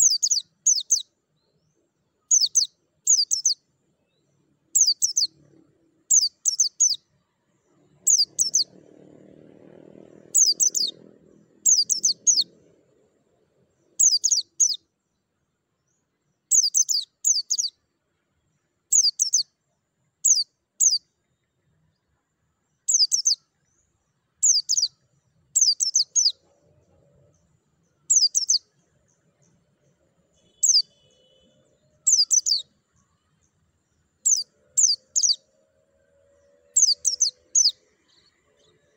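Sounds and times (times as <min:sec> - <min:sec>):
white-eye chirping: 0:04.8 - 0:05.3, 0:06.1 - 0:07.0, 0:08.0 - 0:08.8, 0:10.2 - 0:11.0, 0:11.6 - 0:12.5, 0:14.0 - 0:14.8, 0:16.5 - 0:17.7, 0:22.9 - 0:23.4, 0:24.4 - 0:24.9, 0:25.6 - 0:26.4, 0:28.1 - 0:28.6, 0:32.1 - 0:32.7, 0:34.2 - 0:35.4, 0:36.8 - 0:38.3.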